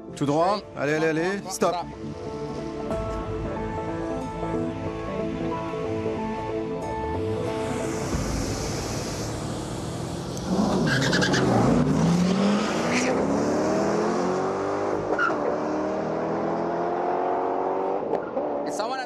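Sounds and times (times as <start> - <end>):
car engines revving: 7.2 - 19.0
car accelerating away: 8.2 - 18.7.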